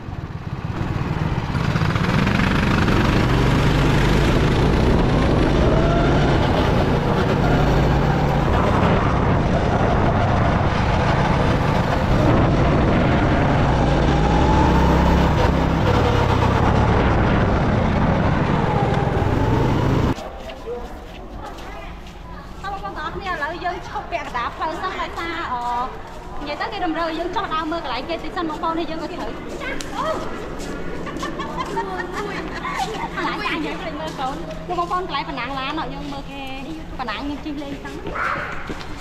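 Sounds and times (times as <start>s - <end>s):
go-kart engine revving: 0.0s - 20.2s
low rumble: 2.4s - 20.2s.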